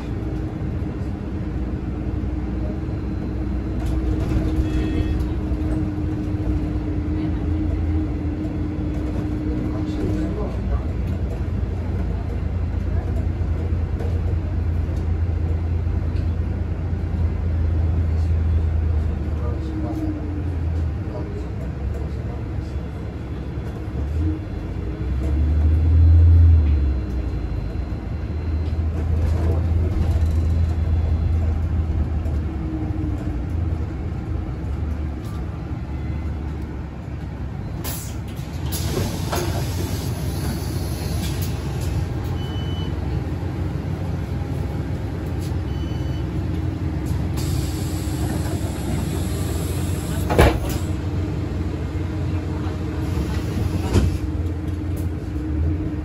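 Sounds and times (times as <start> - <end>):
bus drivetrain hum: 0.0 - 56.0.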